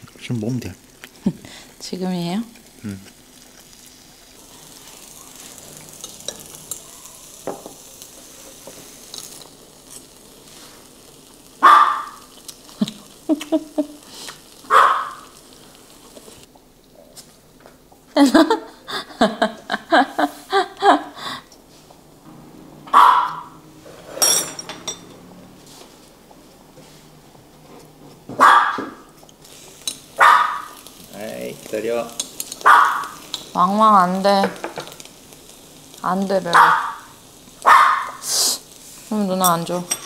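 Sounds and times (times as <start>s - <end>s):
beef sizzling on a grill pan: 0.0s - 40.0s
small dog barking: 11.6s - 12.3s, 14.7s - 15.3s, 22.9s - 23.5s, 28.4s - 29.1s, 30.2s - 30.8s, 32.6s - 33.2s, 36.5s - 38.2s.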